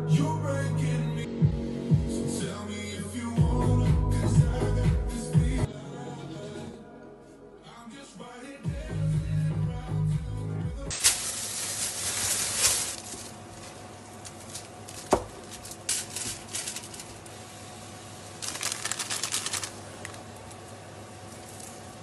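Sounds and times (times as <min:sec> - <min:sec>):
foil crinkling: 0:10.9 - 0:17.4, 0:18.3 - 0:22.0
rustling of food wrapping: 0:10.9 - 0:17.4, 0:18.3 - 0:22.0.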